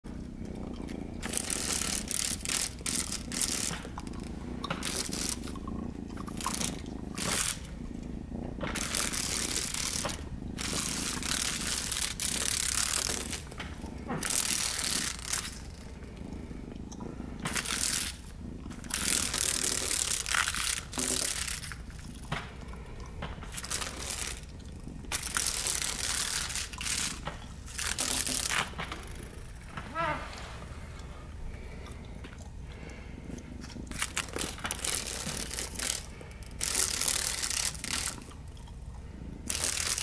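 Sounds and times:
dragonfly wings buzzing on glass: 0:01.2 - 0:04.1, 0:08.7 - 0:15.8.

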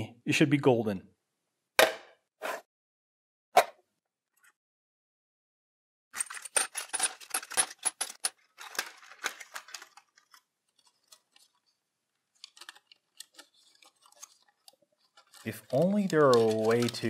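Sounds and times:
metal bits clattering: 0:06.1 - 0:10.4.

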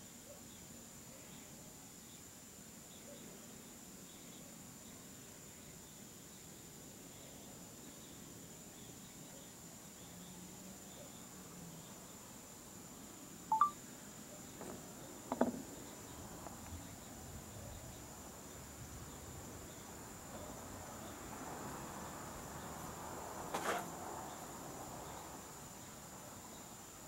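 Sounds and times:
night insects chorus: 0:00.0 - 0:27.0
short chirp: 0:13.5 - 0:13.8.

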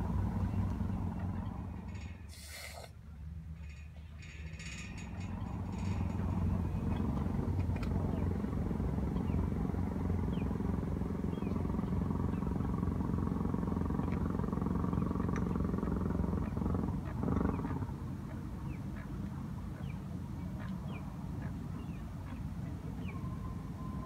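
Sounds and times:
low engine drone: 0:00.0 - 0:24.0
small birds chirping: 0:08.0 - 0:13.0, 0:13.8 - 0:23.4.

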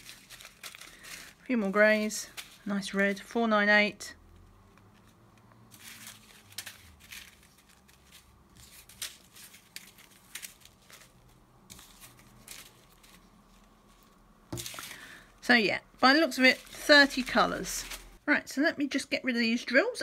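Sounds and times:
plastic bags crinkling: 0:00.0 - 0:03.2, 0:05.7 - 0:18.2.

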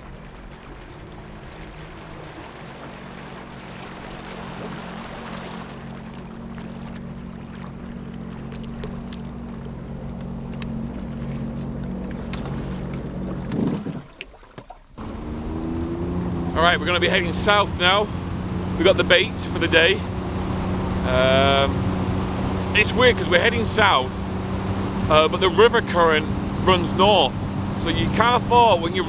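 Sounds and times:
personal watercraft engine idling: 0:00.0 - 0:14.2, 0:14.9 - 0:29.0.

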